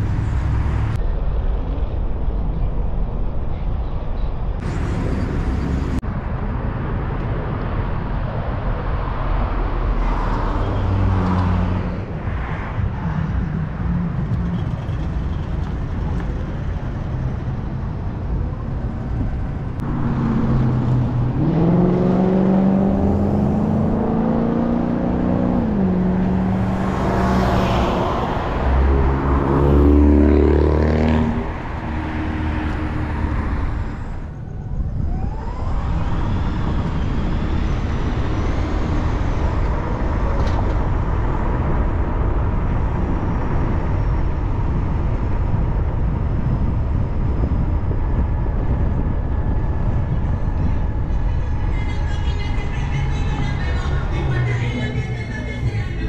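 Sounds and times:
road and tyre noise: 0:00.0 - 0:56.0
car engine revving: 0:19.8 - 0:34.3.

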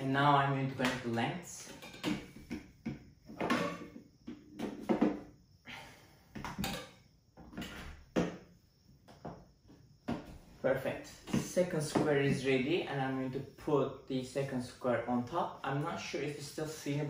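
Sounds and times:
metal tubes rubbing and scraping: 0:03.4 - 0:04.0.

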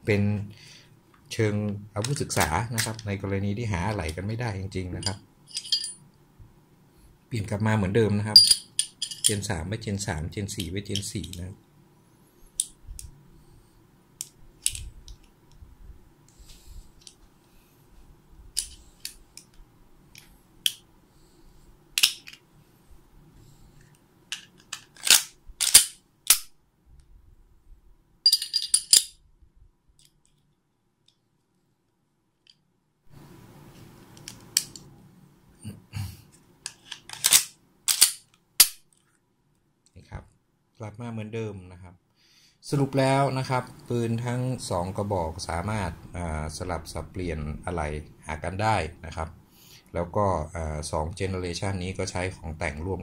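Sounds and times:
pistol parts clicking and clacking: 0:05.0 - 0:06.0, 0:08.4 - 0:09.4, 0:12.6 - 0:12.8, 0:18.6 - 0:19.6, 0:22.0 - 0:22.4, 0:24.3 - 0:26.5, 0:28.3 - 0:29.2, 0:36.6 - 0:39.0
metallic ring: 0:05.0 - 0:06.1, 0:08.4 - 0:09.3.

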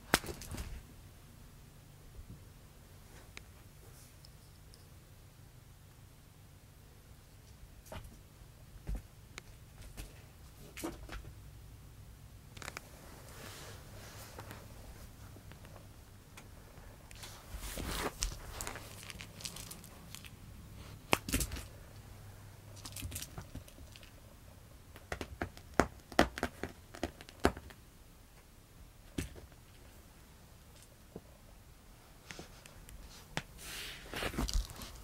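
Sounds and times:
scratchy rustles of claws: 0:17.1 - 0:21.8, 0:32.2 - 0:35.0.

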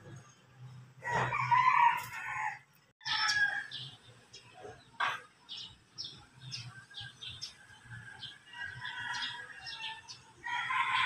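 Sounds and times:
rooster crowing: 0:01.0 - 0:03.8, 0:08.0 - 0:11.0
small birds chirping: 0:03.0 - 0:11.0.

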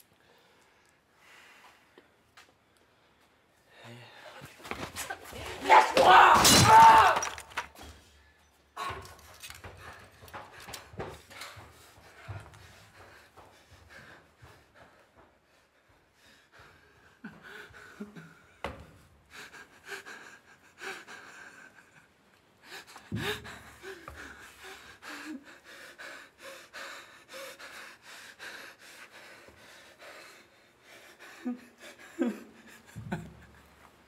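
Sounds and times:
young man crying and sobbing: 0:19.3 - 0:28.8, 0:30.4 - 0:33.8.

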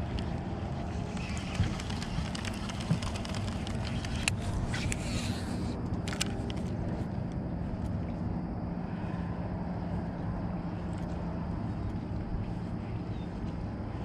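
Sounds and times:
boat motor humming: 0:00.0 - 0:08.7.

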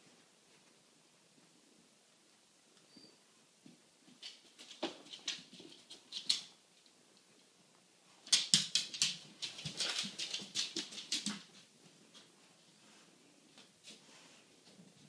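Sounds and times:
dog claws clicking on tiles: 0:04.2 - 0:06.6, 0:08.2 - 0:11.6.

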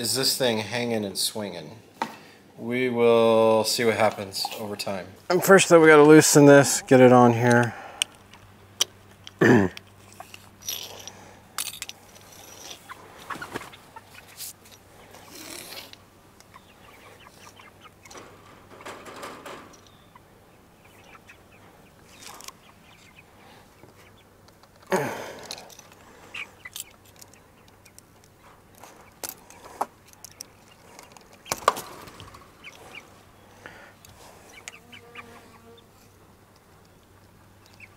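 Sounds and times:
hens clucking: 0:03.2 - 0:11.0, 0:12.2 - 0:37.9.

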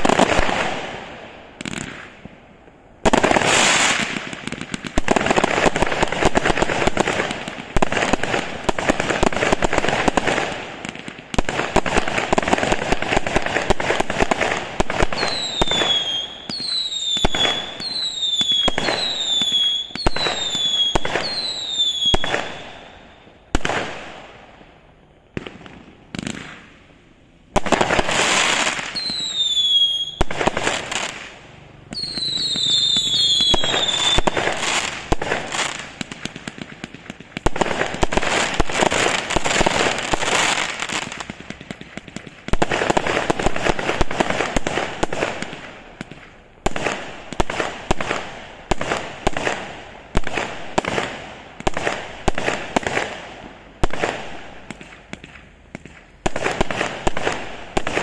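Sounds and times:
firework crackling bursts: 0:00.0 - 0:58.0
firework sharp reports: 0:00.0 - 0:58.0
firework whistles: 0:11.4 - 0:24.1, 0:27.6 - 0:41.6.

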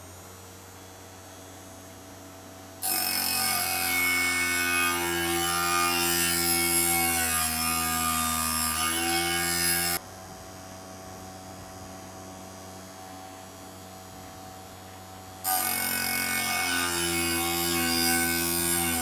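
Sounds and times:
quiet steady motor hum: 0:00.0 - 0:19.0
mini grinder whining against steel: 0:02.8 - 0:10.0, 0:15.4 - 0:19.0.

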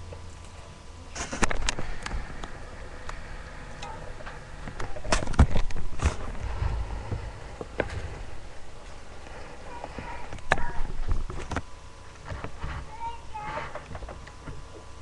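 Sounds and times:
rustling: 0:00.3 - 0:14.7.

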